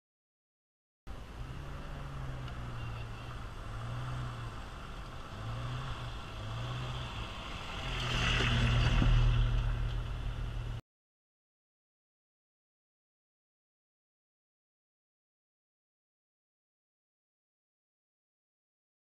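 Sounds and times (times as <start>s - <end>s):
car engine running at low revs: 1.1s - 10.8s.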